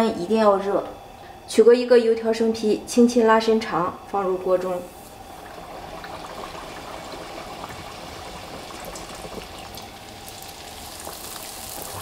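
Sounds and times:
hot oil bubbling and sizzling: 0:04.8 - 0:12.0.

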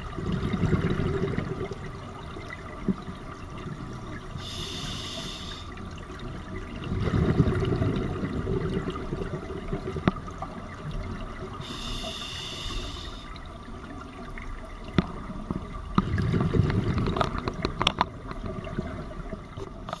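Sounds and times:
exhaled bubbles bubbling: 0:00.0 - 0:20.0
hissing regulator inhalation: 0:04.4 - 0:05.8, 0:11.6 - 0:13.3
diving gear clicks: 0:16.7 - 0:18.5.

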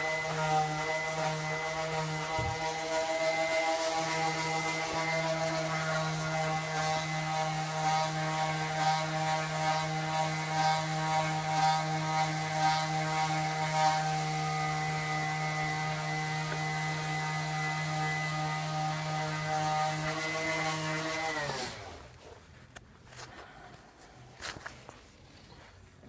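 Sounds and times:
soft scraping strokes: 0:20.0 - 0:26.0.

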